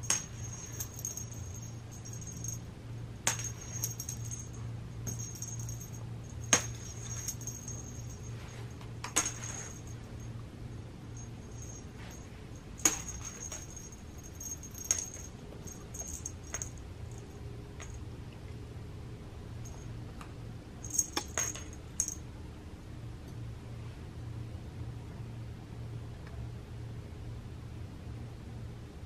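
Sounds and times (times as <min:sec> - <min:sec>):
light metallic jingling: 0:00.0 - 0:02.7, 0:03.3 - 0:18.1, 0:19.6 - 0:20.0, 0:20.8 - 0:22.2
sharp metallic clinks: 0:00.0 - 0:18.0, 0:19.6 - 0:20.0, 0:20.8 - 0:22.2
low steady hum: 0:00.0 - 0:29.0.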